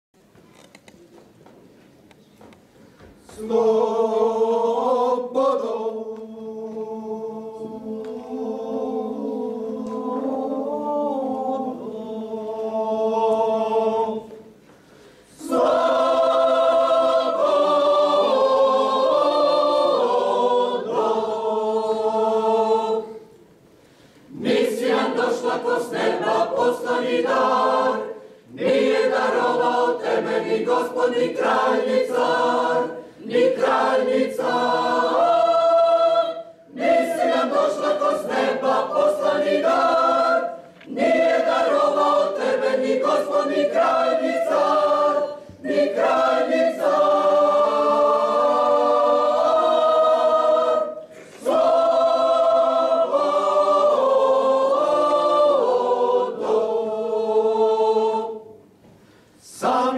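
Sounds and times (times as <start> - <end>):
choir singing in parts: 3.2 - 59.9
singers breathing: 14.6 - 15.4, 23.7 - 24.3, 58.9 - 59.4.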